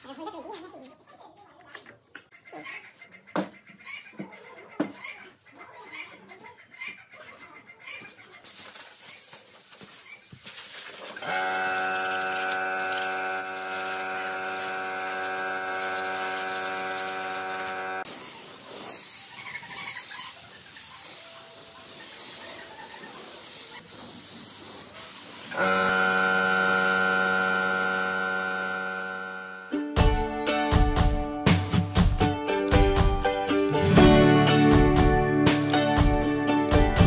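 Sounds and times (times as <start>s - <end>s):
machine hum with high whine: 11.2s - 18.0s, 25.5s - 29.7s.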